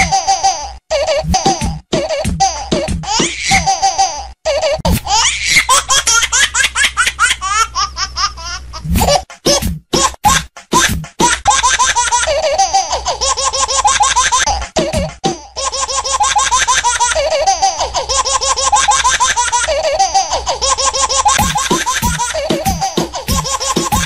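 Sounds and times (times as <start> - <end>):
baby giggling: 0.0 - 24.0
background music: 21.4 - 24.0.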